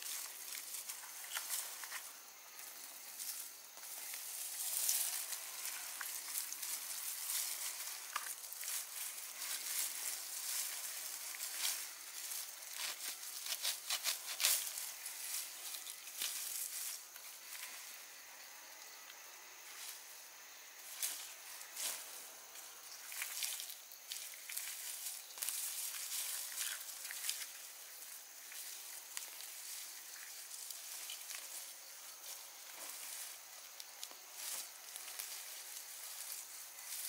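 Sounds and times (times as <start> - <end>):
weeds rustling and crackling: 0.0 - 37.0
stems snapping: 0.5 - 2.1.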